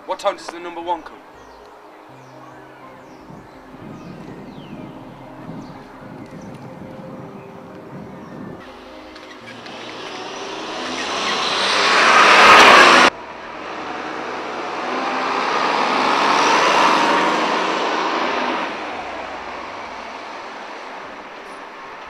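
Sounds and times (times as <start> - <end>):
bus driving past: 1.1 - 22.0
vehicle engine and tyre noise: 3.0 - 22.0.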